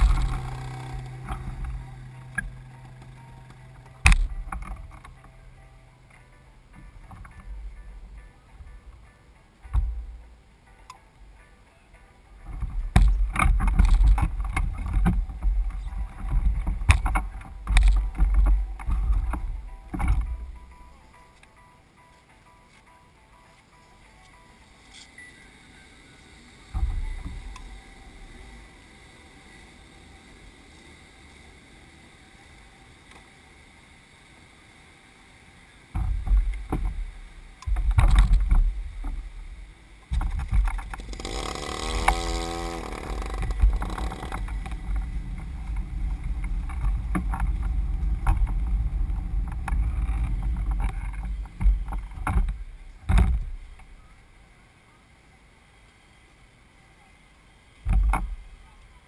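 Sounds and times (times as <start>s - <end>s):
go-kart rolling over pavement: 0.0s - 9.0s, 12.4s - 21.0s, 35.9s - 53.9s
wavering tone: 0.0s - 33.0s
knocks and thumps: 9.6s - 10.2s, 12.5s - 20.5s, 36.0s - 37.1s, 37.7s - 39.2s, 40.1s - 53.6s.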